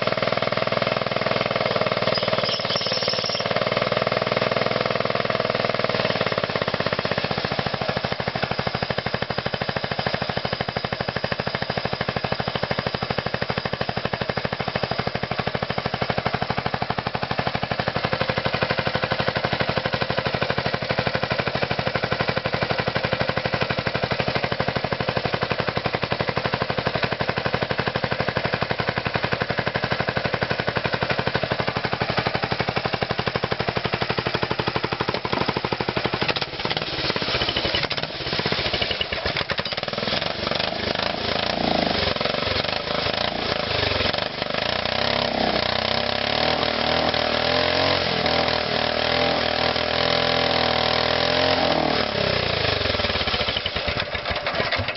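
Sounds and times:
small engine pulsing exhaust: 0.0s - 54.9s.

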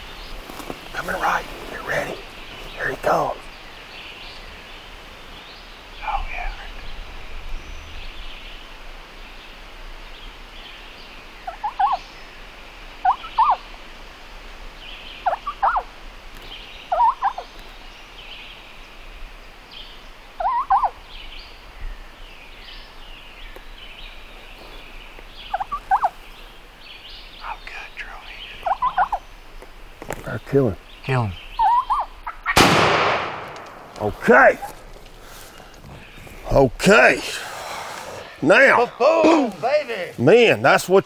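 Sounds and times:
turkey gobbling: 11.5s - 12.0s, 13.0s - 13.6s, 15.2s - 15.9s, 16.9s - 17.4s, 20.4s - 21.0s, 25.5s - 26.2s, 28.6s - 29.2s, 31.6s - 32.7s.

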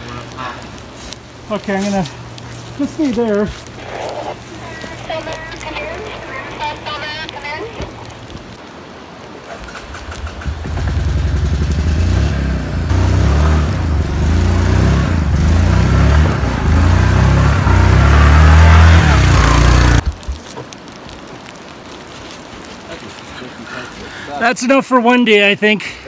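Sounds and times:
atv engine climbing under load: 9.5s - 20.3s.

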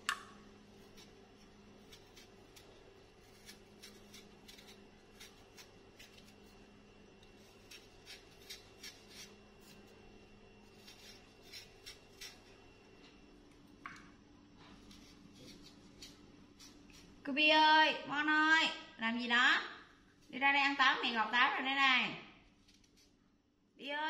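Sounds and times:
knife cutting apple: 0.0s - 6.6s, 7.2s - 10.0s, 10.7s - 12.6s, 14.8s - 17.2s.

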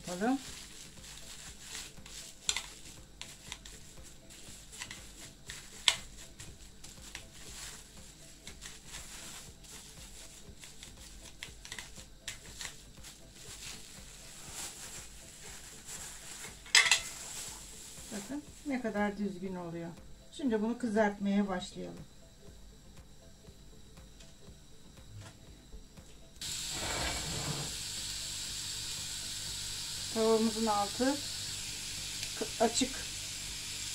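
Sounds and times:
plastic bag crinkling: 0.0s - 3.9s, 4.5s - 18.4s.

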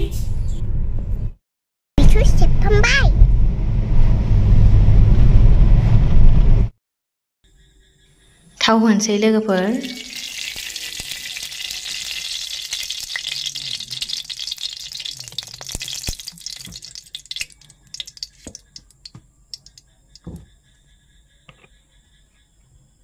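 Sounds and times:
oil sizzling in a wok: 9.7s - 20.3s.

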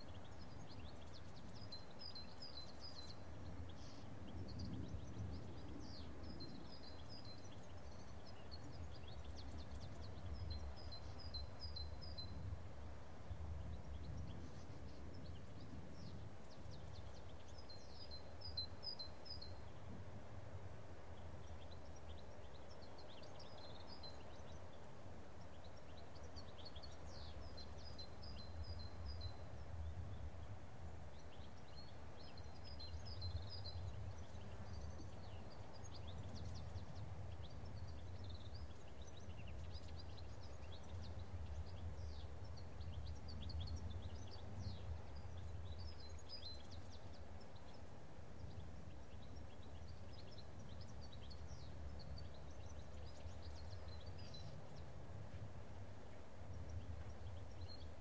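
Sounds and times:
small birds twittering: 0.0s - 58.0s.

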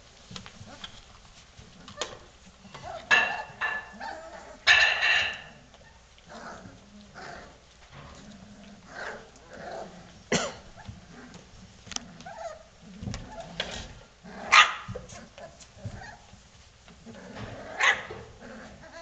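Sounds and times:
puppies yipping: 1.8s - 6.0s, 14.5s - 16.4s.

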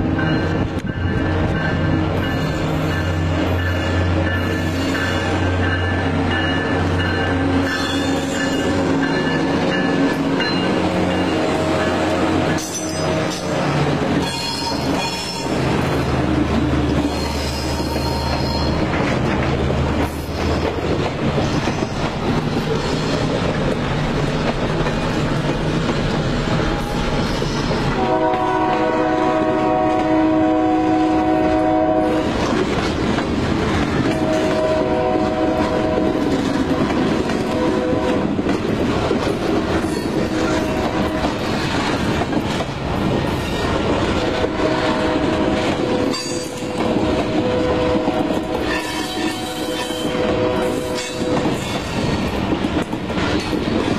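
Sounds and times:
diesel locomotive engines: 0.0s - 53.9s
boxcars clattering over rails: 0.3s - 28.0s, 35.6s - 53.9s
train air horn: 10.8s - 13.4s, 27.9s - 32.4s, 34.0s - 38.4s, 44.3s - 51.7s.

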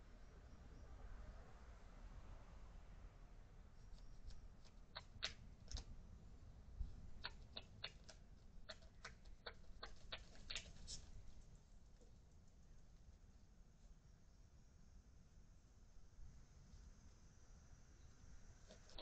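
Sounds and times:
small dogs yipping: 7.2s - 11.0s.

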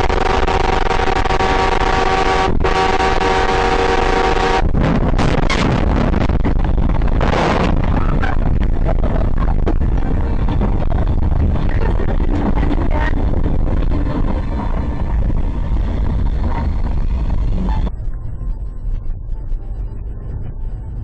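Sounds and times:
vehicle horn blaring: 0.0s - 4.7s
engine and road rumble: 0.0s - 21.0s.

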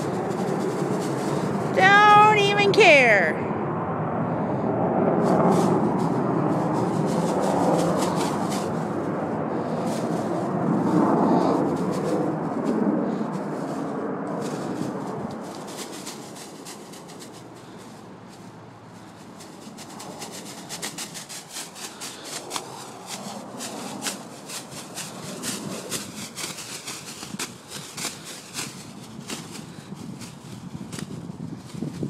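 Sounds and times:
plastic bag crinkling: 13.4s - 32.0s.

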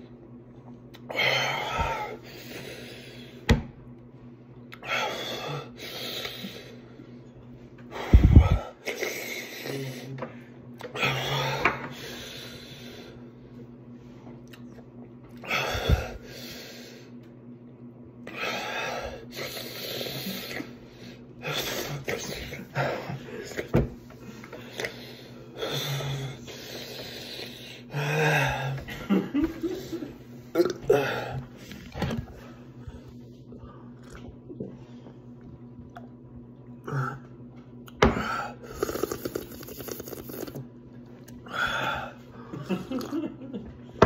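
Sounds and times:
man breathing hard: 7.9s - 13.4s, 15.4s - 17.2s, 18.3s - 28.9s.

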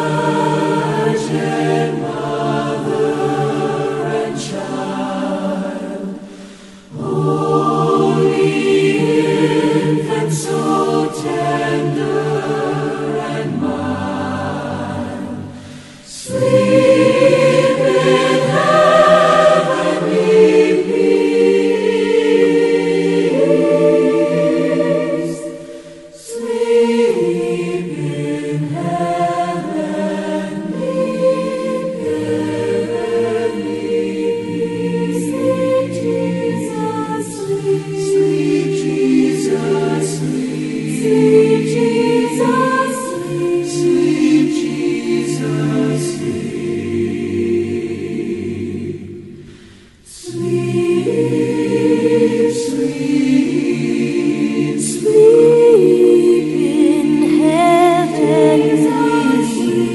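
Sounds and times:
choir singing sustained chords: 0.0s - 59.9s.

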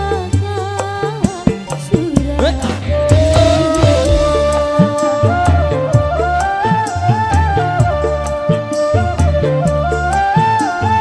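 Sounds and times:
band lead melody: 0.0s - 11.0s
steady drum beat: 0.2s - 6.3s.

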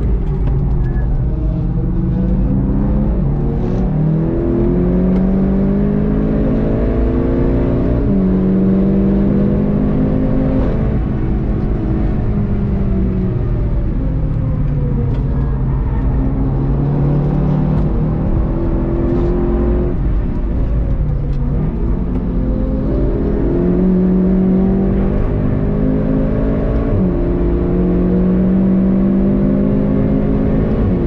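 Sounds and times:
car engine revving: 0.0s - 31.0s
road and tyre noise: 0.0s - 31.0s.

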